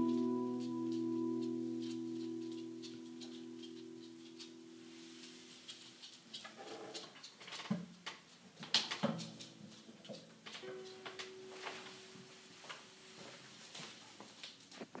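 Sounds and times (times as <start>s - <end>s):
guitar strings ringing: 0.0s - 4.8s.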